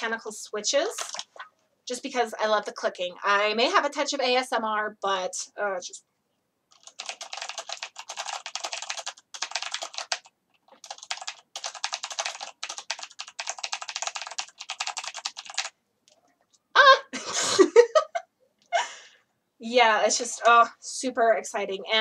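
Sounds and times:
mechanical keyboard typing: 1.0s - 1.3s, 6.7s - 16.2s.

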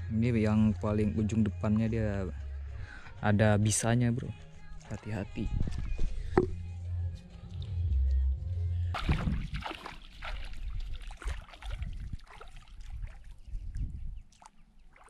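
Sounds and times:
low rumble: 5.5s - 9.6s
seawater sloshing and splashing: 8.9s - 13.6s.

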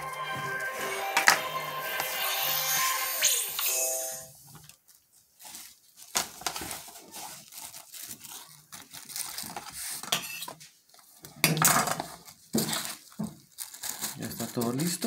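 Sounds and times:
plastic film crinkling: 4.4s - 15.0s.

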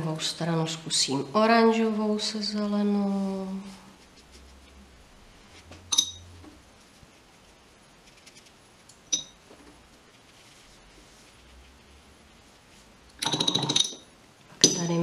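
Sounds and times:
paintbrush clinking against container: 9.1s - 9.4s.

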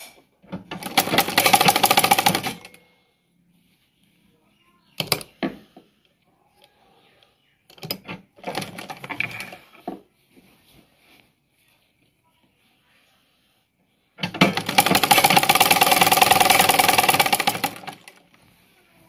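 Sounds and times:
sewing machine clatter: 0.5s - 2.8s, 7.8s - 9.7s, 14.2s - 18.4s.

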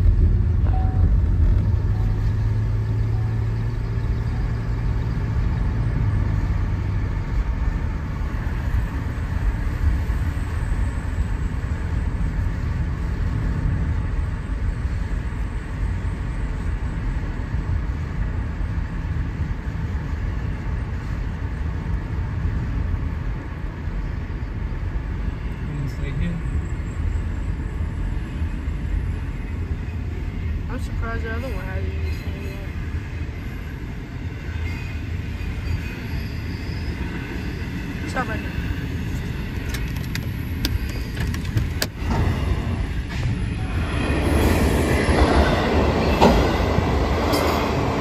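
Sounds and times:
continuous low rumble: 0.0s - 33.6s
vehicle engine humming: 0.0s - 35.6s, 36.6s - 48.0s.

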